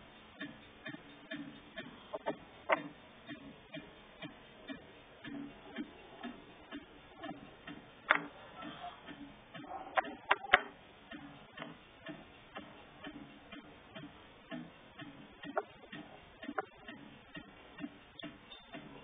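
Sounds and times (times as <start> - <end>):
wooden blocks knocking together: 8.1 - 8.3.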